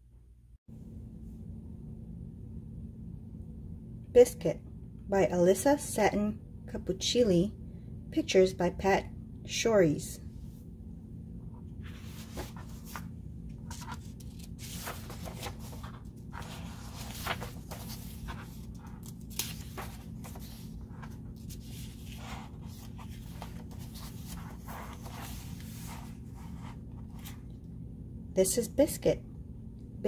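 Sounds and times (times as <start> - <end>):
steady low hum: 0.0 - 30.0
book pages rustling: 11.6 - 27.6.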